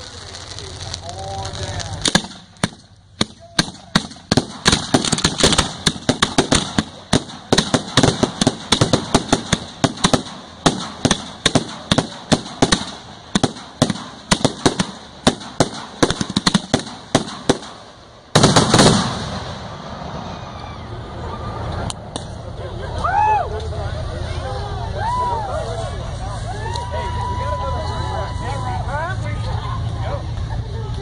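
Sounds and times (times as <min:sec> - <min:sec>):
fireworks sharp reports: 0:00.0 - 0:22.5.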